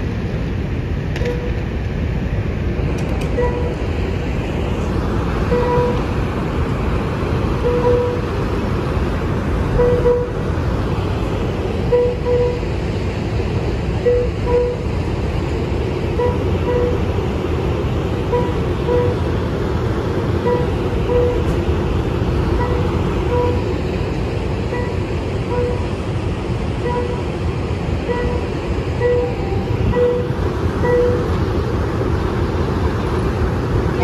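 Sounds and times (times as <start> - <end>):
train low rumble: 0.0 - 34.0
short pitched beep: 29.0 - 31.2.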